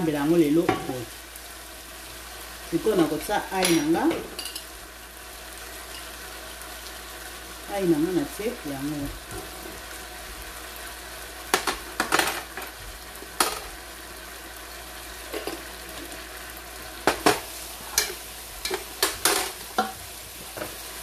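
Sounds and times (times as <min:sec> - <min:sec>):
sauce sizzling in a frying pan: 0:00.0 - 0:21.0
spoons clacking and scraping pan: 0:17.1 - 0:20.0.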